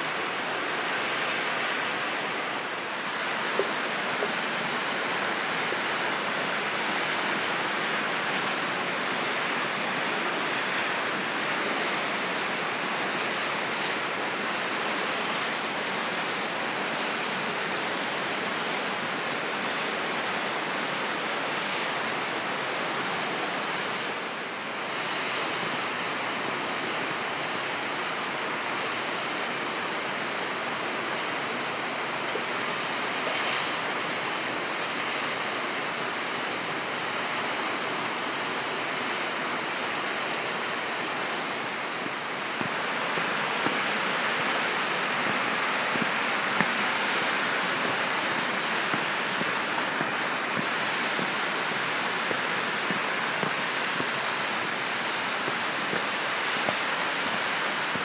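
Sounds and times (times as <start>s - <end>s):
water rushing: 0.0s - 58.0s.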